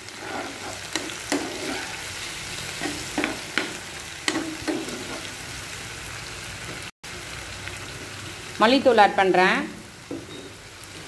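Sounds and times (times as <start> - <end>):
metal spatula scraping pan: 0.0 - 2.2, 2.8 - 5.4, 10.2 - 11.0
onion sizzling in oil: 0.0 - 11.0.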